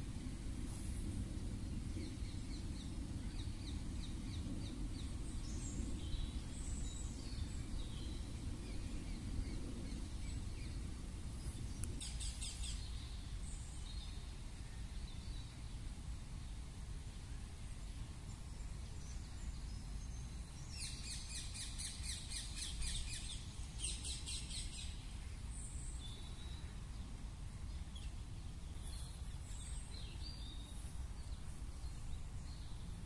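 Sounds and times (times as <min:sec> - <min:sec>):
low outdoor rumble: 0:00.0 - 0:20.7
birds chirping: 0:17.8 - 0:33.0.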